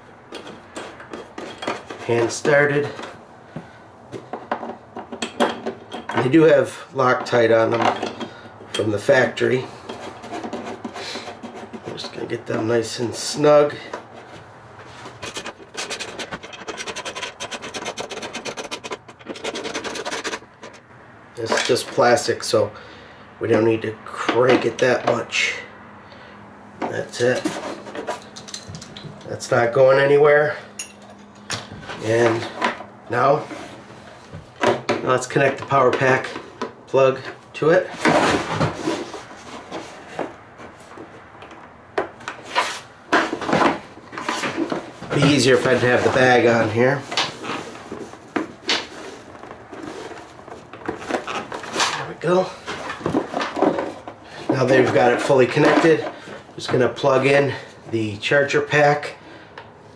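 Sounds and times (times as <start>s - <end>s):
cable rubbing and scraping on fabric: 14.9s - 20.8s.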